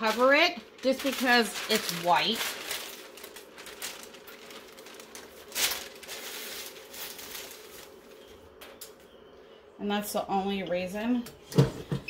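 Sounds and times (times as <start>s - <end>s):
paper rustling and crackling: 0.0s - 9.0s.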